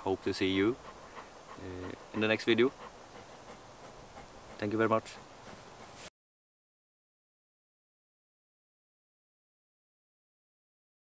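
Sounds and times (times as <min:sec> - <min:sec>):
faint background hiss: 0:00.0 - 0:06.1.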